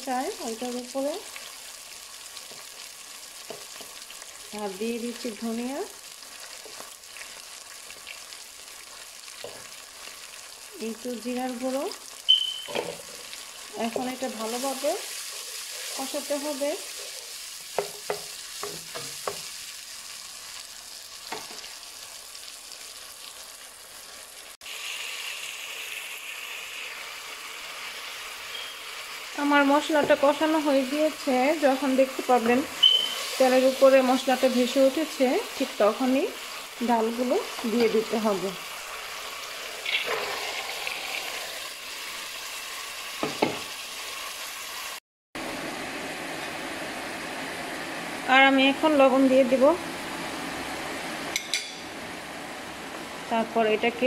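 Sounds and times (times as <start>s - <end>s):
spice paste sizzling in oil: 0.0s - 54.0s
wooden spoon knocking against pan: 17.7s - 19.5s.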